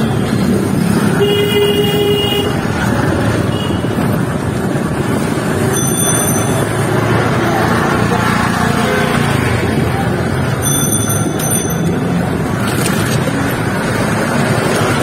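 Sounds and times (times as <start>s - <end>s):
street traffic noise: 0.0s - 15.0s
vehicle horn: 1.2s - 2.6s.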